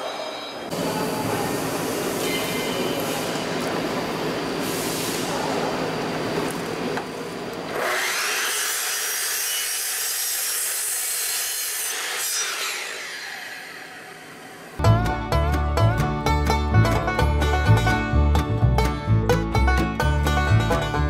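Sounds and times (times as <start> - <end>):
miter saw motor whining: 7.7 - 10.1, 11.9 - 14.8.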